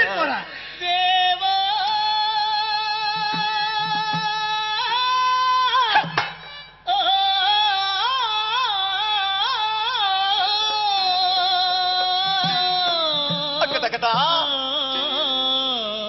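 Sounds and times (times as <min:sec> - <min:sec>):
person singing ornamented melody: 0:06.9 - 0:16.0.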